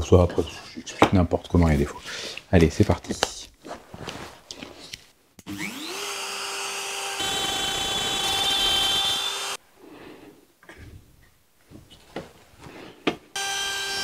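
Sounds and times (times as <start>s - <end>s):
router bit cutting wood: 5.4s - 9.6s, 13.4s - 14.0s
router motor whine: 5.5s - 9.6s, 13.4s - 14.0s.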